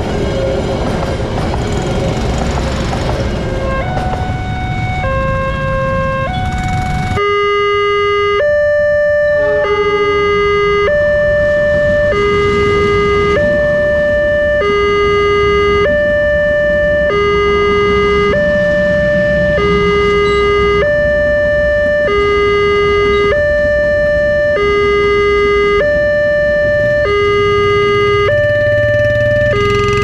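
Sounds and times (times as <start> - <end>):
low engine hum: 0.0 - 7.2, 8.4 - 30.0
train coaches rumbling past: 0.0 - 7.2, 10.9 - 14.2, 18.0 - 20.4
level crossing alarm two-tone: 3.5 - 30.0.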